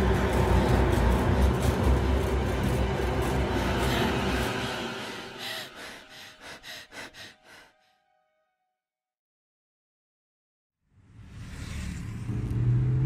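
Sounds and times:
low rumbling drone: 0.0s - 8.0s
woman gasping: 3.8s - 7.8s.

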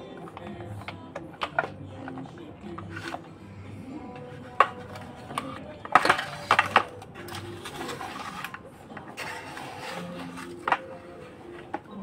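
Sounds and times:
hard plastic clacks and knocks: 0.0s - 3.3s, 4.1s - 7.5s.

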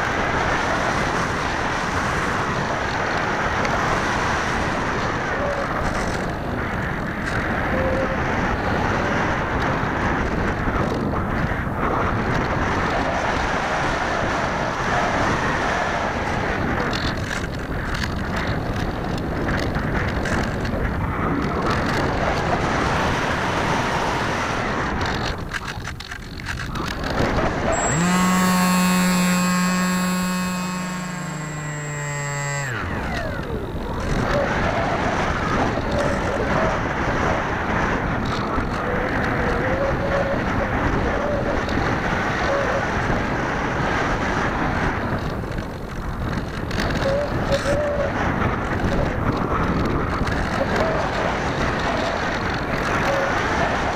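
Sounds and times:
electric motor and propeller hum: 0.0s - 53.9s.

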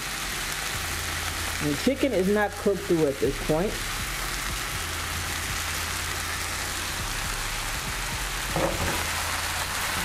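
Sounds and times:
chicken sizzling in hot oil: 0.0s - 10.0s
pan clattering: 8.5s - 9.2s.

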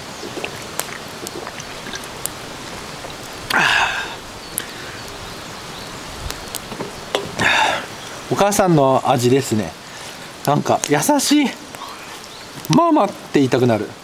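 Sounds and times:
rain hiss: 0.0s - 14.0s
loud breathy burst: 3.5s - 5.0s, 7.4s - 7.9s.

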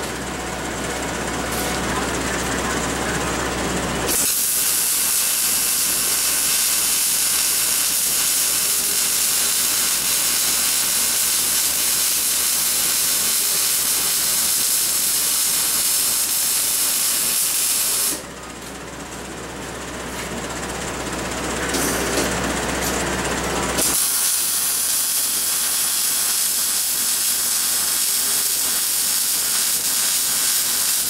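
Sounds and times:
welding arc hissing: 4.1s - 18.2s, 23.8s - 31.0s.

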